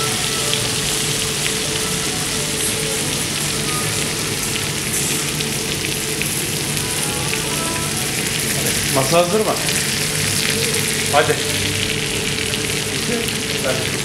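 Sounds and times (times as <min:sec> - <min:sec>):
butter sizzling in a pan: 0:00.0 - 0:14.0.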